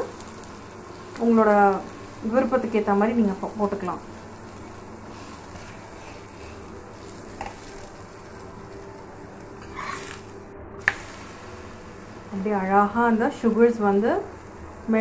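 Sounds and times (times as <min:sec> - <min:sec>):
flatbread sizzling on griddle: 0:00.0 - 0:12.3.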